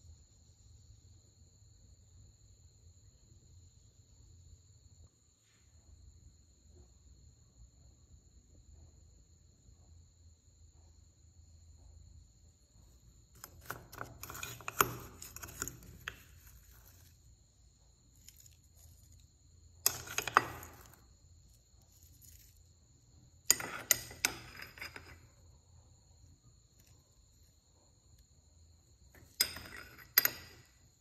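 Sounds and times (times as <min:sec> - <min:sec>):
metal spoon scraping ceramic bowls: 0:13.4 - 0:17.3, 0:18.3 - 0:21.0, 0:23.3 - 0:25.4, 0:29.1 - 0:31.0.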